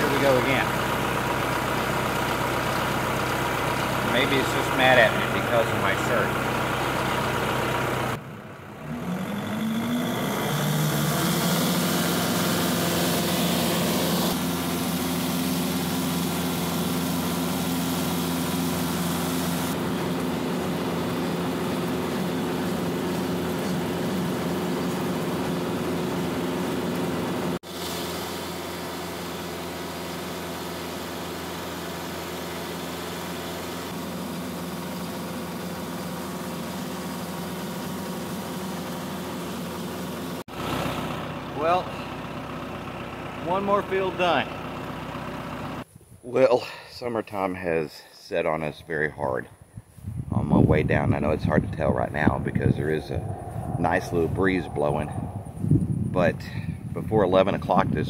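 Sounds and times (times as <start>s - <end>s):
tractor engine running: 0.0s - 45.9s
rotary cutter through tall grass: 9.3s - 20.0s.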